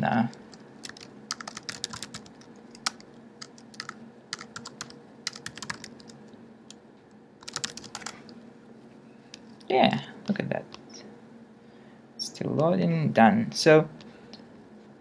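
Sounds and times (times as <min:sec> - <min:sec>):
typing on computer keyboard: 0:00.5 - 0:06.2, 0:07.4 - 0:08.2.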